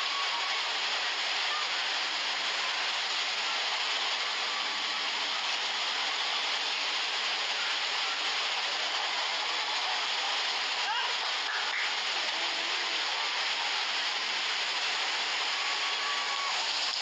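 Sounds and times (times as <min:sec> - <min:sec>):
floodwater rushing torrent: 0:00.0 - 0:17.0
heavy rain: 0:00.0 - 0:17.0.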